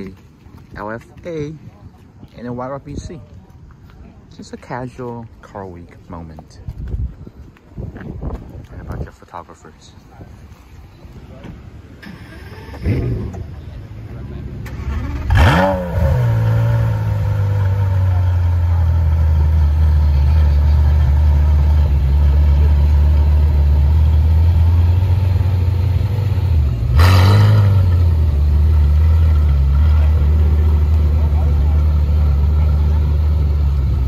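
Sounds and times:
car engine starting and idling: 11.9 - 34.0.

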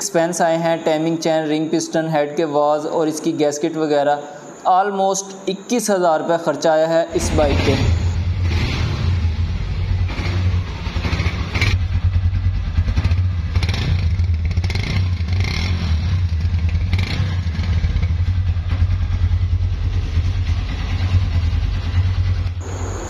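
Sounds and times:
motorcycle engine revving: 7.1 - 23.0.

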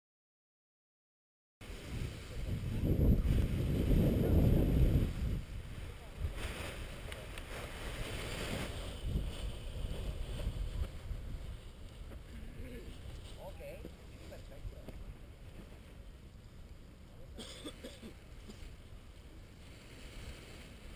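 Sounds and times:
wind buffeting microphone: 1.6 - 16.1.

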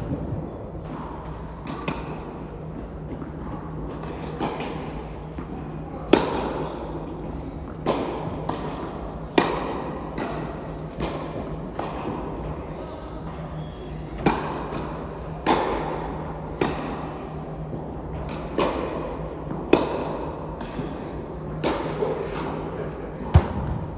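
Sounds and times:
steady low hum: 0.0 - 23.9
racket hitting tennis ball: 0.8 - 2.3, 6.1 - 7.0, 7.7 - 12.3, 14.2 - 17.1, 18.2 - 20.9
tennis ball bouncing: 7.7 - 12.3, 14.2 - 14.8, 18.2 - 20.8.

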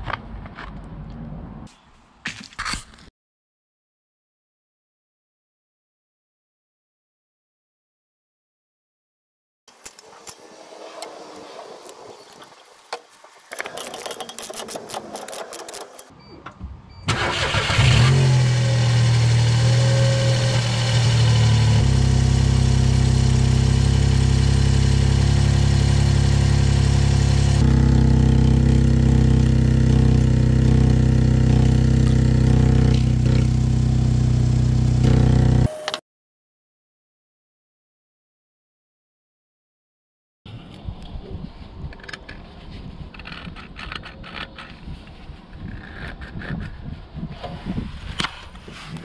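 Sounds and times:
car engine starting and idling: 16.9 - 35.7.

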